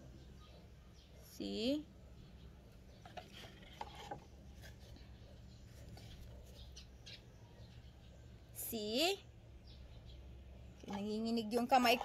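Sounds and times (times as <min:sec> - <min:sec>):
plastic bottle and plants handled: 0:02.7 - 0:07.0.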